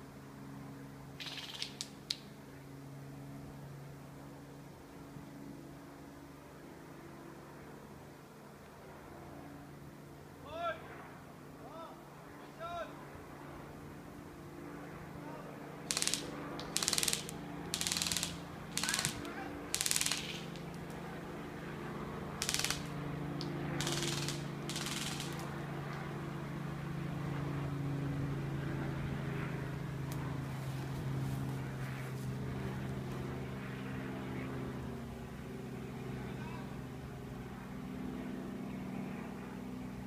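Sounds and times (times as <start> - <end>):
airsoft rifles firing bursts: 15.8 - 20.8, 22.4 - 23.0, 23.8 - 25.5.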